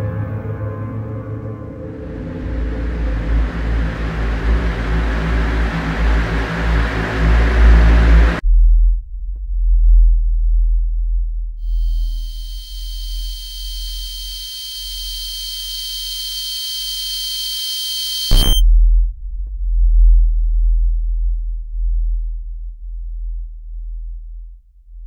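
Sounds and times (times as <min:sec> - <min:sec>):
deep low rumble: 0:01.8 - 0:14.2, 0:18.3 - 0:24.7
high-pitched ringing tone: 0:11.6 - 0:18.6
short burst: 0:11.7 - 0:18.6.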